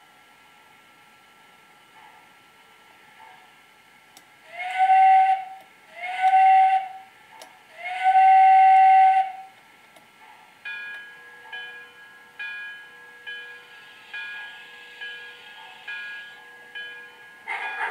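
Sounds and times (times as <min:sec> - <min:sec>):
model train steam whistle: 0:04.5 - 0:07.1, 0:07.7 - 0:09.6
locomotive bell ringing: 0:10.6 - 0:17.9.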